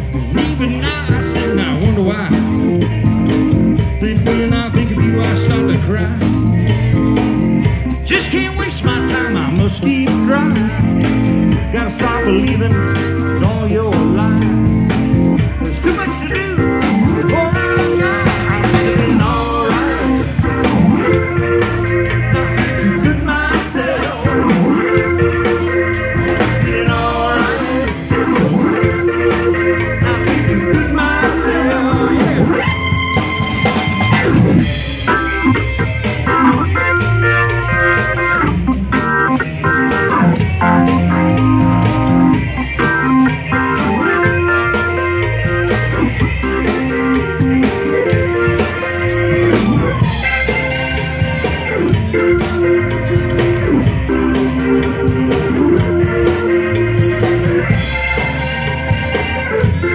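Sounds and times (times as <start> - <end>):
drum kit steady beat: 0.0 - 59.9
electric guitar: 0.0 - 59.9
organ through rotating speaker: 0.0 - 59.9.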